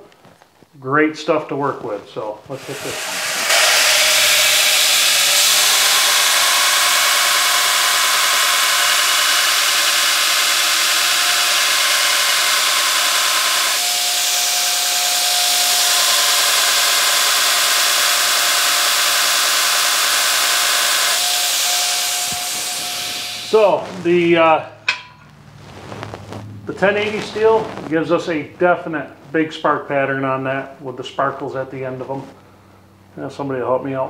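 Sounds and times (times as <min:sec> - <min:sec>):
steady whine: 0:02.0 - 0:33.1
belt grinder grinding steel: 0:02.5 - 0:24.0.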